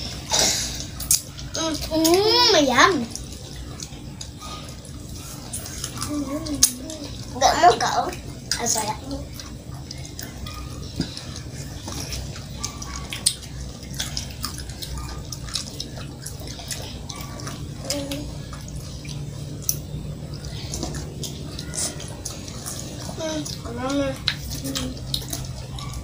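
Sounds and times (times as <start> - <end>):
children chewing cucumber: 0.0 - 26.0
steady low hum: 0.0 - 26.0
wet clicks and smacks: 0.8 - 2.2, 8.1 - 23.6, 24.2 - 26.0.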